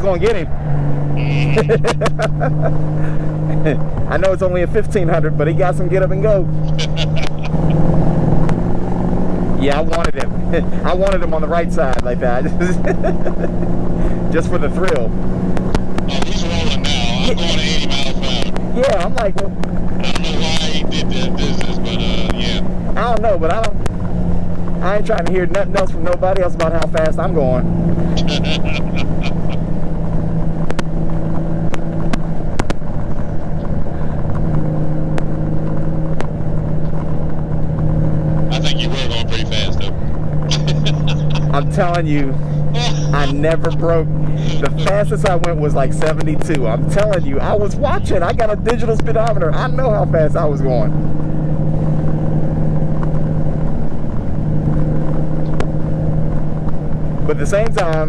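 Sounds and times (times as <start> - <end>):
wind and road rush: 0.0 - 58.0
motorcycle engine droning: 25.6 - 58.0.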